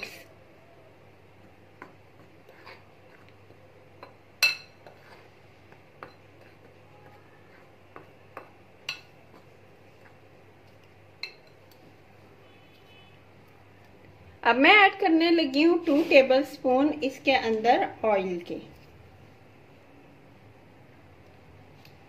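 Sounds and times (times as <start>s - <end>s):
spoon stirring flour: 1.4s - 12.0s.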